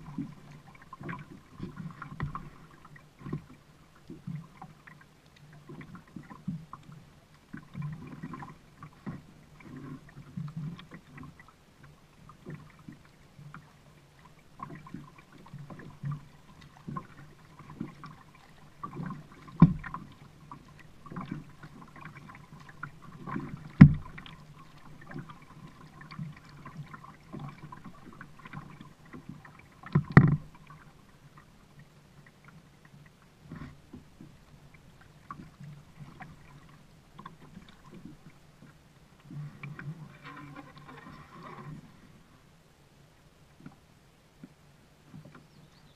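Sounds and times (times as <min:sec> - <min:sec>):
paddle splashes: 0:00.0 - 0:45.9
paddle knocking on kayak hull: 0:23.6 - 0:24.3.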